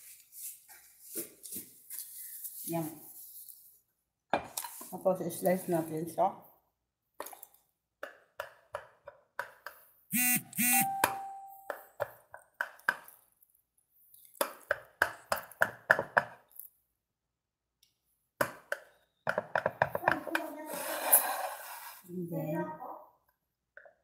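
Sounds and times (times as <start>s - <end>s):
pitched chime: 10.6s - 11.8s.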